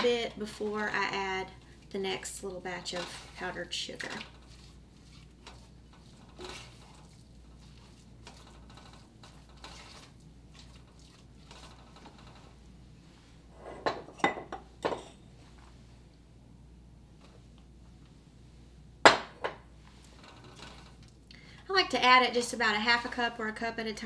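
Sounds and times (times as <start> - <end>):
spatula stirring thick sauce: 0.4 - 12.7
kitchenware clinks and knocks: 13.7 - 15.2.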